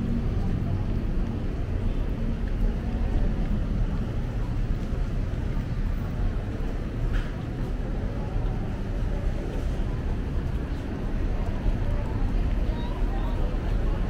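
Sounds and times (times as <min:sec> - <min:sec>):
city ambience rumble: 0:00.0 - 0:14.0.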